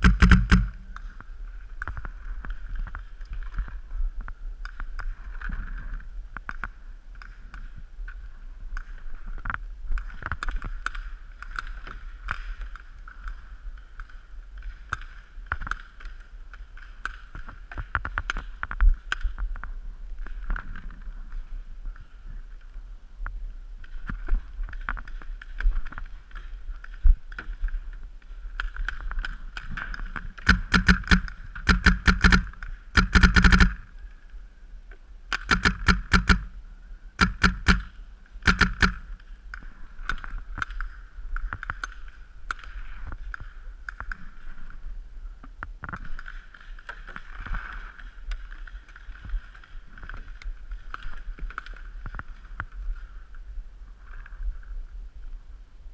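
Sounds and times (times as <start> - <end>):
paintball marker firing: 0.0 - 0.9, 30.4 - 33.9, 35.4 - 36.6, 37.2 - 39.2.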